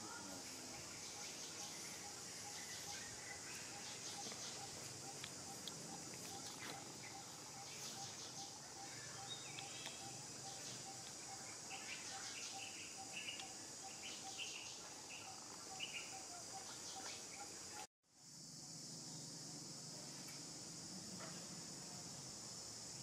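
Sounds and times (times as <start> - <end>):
insects droning: 0.0 - 23.0
bird chirps: 0.8 - 17.8.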